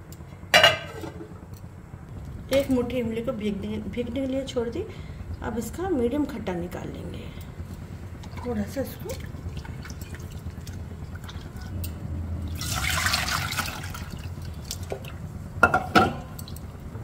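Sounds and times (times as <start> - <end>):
hands squeezing water in a bowl: 8.2 - 11.7
water dripping and splashing: 8.2 - 11.7, 12.5 - 15.2
liquid pouring into a steel pot: 12.4 - 15.2.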